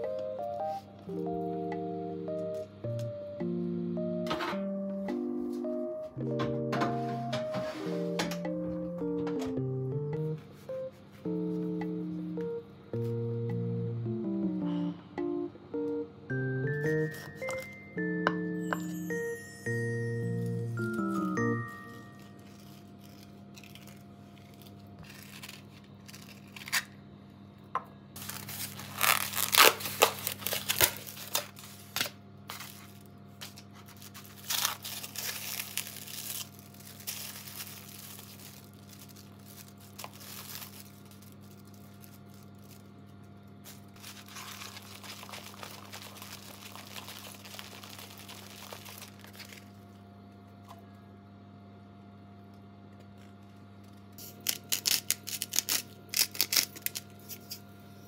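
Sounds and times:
plastic packaging crinkling: 20.3 - 26.9, 28.2 - 50.0, 53.0 - 57.6.

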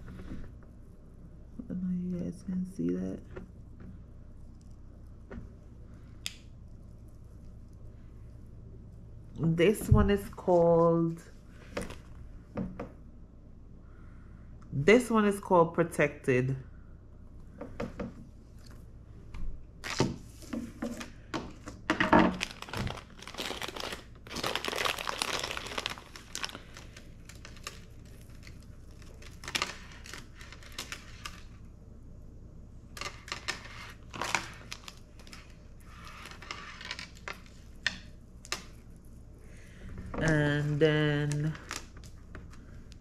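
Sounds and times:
plastic bags crinkling: 21.9 - 31.6, 32.9 - 39.0, 40.2 - 42.7.

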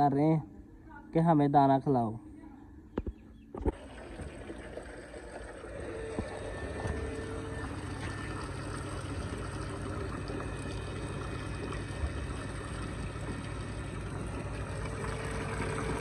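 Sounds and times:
water pouring into metal bucket: 3.7 - 16.0.

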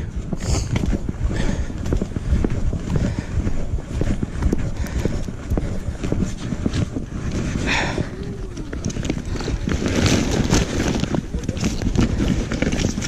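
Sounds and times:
footsteps on concrete: 0.0 - 9.7.

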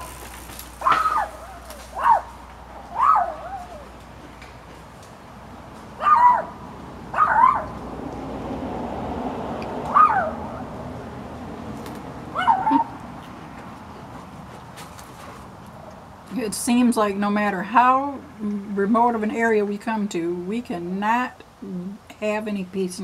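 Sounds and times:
dog barking: 0.8 - 2.4, 6.0 - 7.7, 9.9 - 10.6, 12.3 - 12.9.

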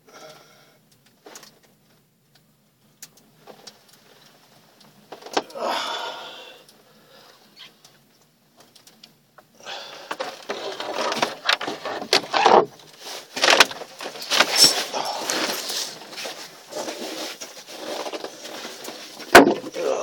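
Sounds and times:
handling fish rustling and knocking: 8.2 - 19.8.

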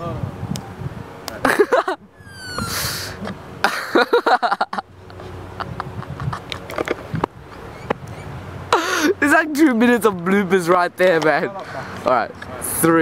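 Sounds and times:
people laughing: 1.4 - 2.8, 3.6 - 6.6.

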